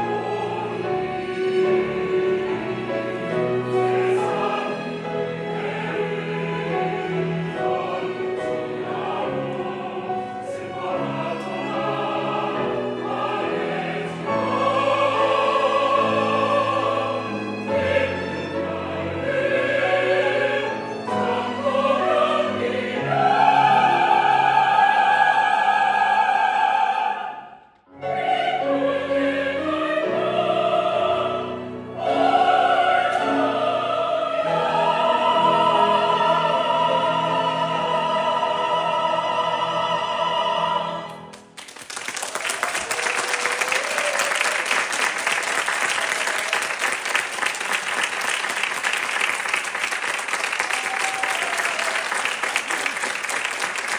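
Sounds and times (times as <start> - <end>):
choir singing with piano and strings: 0.0 - 53.9
audience applause: 41.3 - 53.9.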